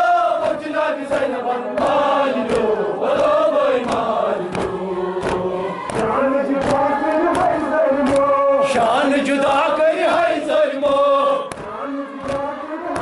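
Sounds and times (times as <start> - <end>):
men chanting in unison: 0.0 - 13.0
chest-beating slaps: 0.4 - 8.3, 11.5 - 13.0.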